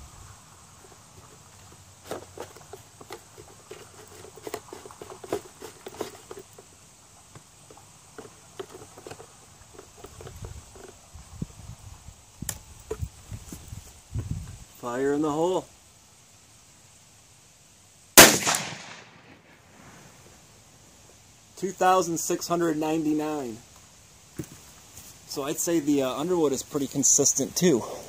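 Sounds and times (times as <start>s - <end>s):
background hiss: 0.0s - 28.0s
light rustling: 0.6s - 11.7s.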